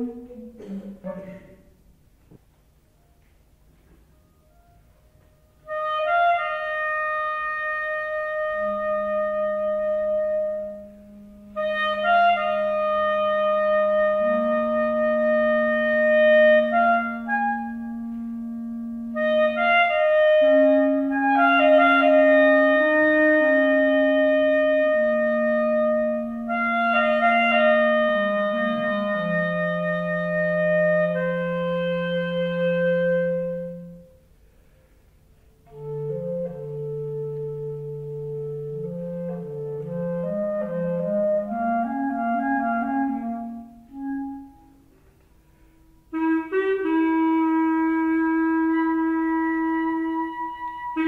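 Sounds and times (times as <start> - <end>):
clarinet duet: 0.0 - 1.8, 2.9 - 51.0.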